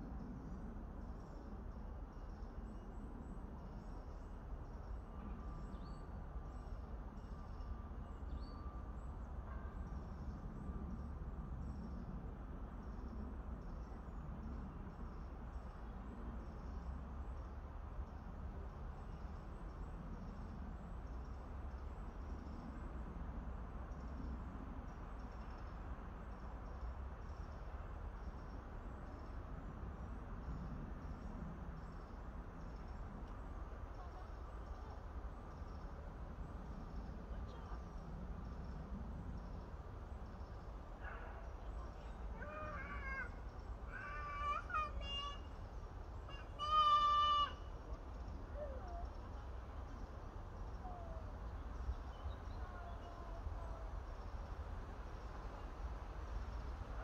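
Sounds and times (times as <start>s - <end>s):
low rumble of wind or traffic: 0.0s - 57.0s.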